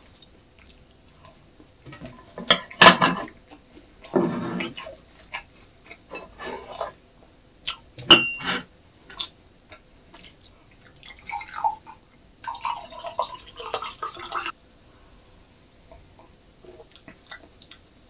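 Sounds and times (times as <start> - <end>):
utensil clinking against glass: 8.1 - 8.5
beer pouring and fizzing: 10.8 - 14.5.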